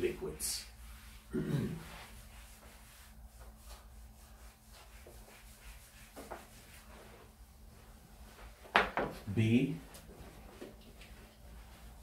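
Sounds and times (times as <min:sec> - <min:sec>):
eraser rubbing whiteboard: 0:00.5 - 0:07.4.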